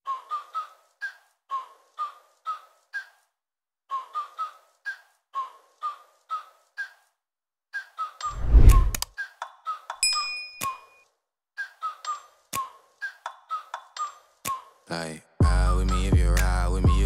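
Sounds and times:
whistle-like music notes: 0:15.5 - 0:17.0.

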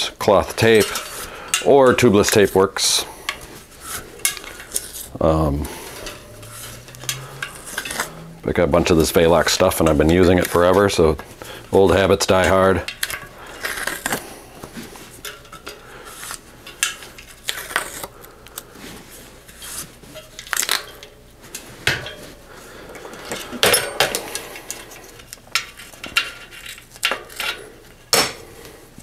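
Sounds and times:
bicycle wheel metallic clinks and rattles: 0:00.6 - 0:11.1, 0:15.1 - 0:18.1, 0:19.4 - 0:27.9.

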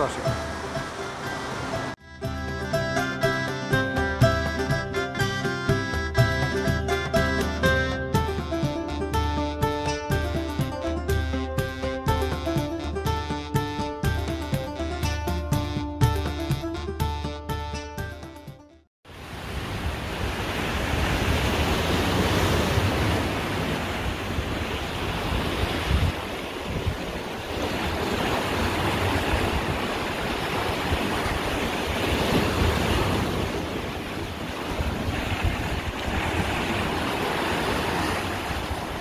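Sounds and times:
sea waves breaking: 0:00.0 - 0:06.3, 0:19.1 - 0:39.0
wind buffeting microphone: 0:19.7 - 0:39.0.

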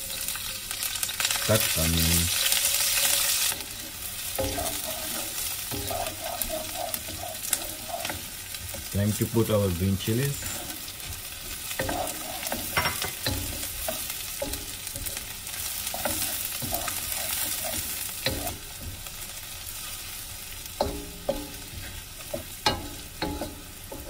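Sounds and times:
onions sizzling in hot oil: 0:00.0 - 0:24.0
wooden spatula knocking on pan: 0:11.8 - 0:15.2, 0:20.8 - 0:21.8, 0:22.4 - 0:24.0.

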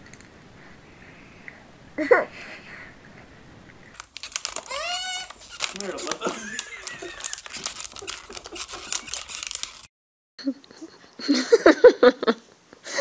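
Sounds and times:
plastic wrapping crinkling: 0:03.9 - 0:09.9.

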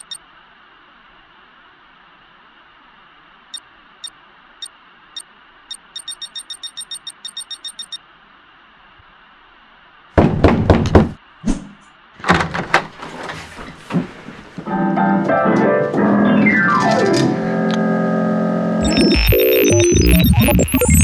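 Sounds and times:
sharp high clicks: 0:00.0 - 0:00.2, 0:05.7 - 0:08.0
knocking and banging on door: 0:10.2 - 0:11.2, 0:12.2 - 0:13.3.

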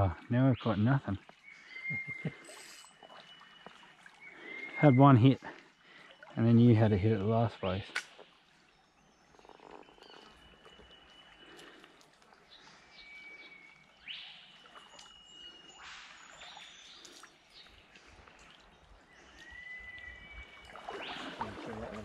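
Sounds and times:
small stream flowing: 0:00.0 - 0:22.0
whistled bird calls: 0:01.4 - 0:06.5, 0:09.0 - 0:17.8, 0:18.7 - 0:22.0.

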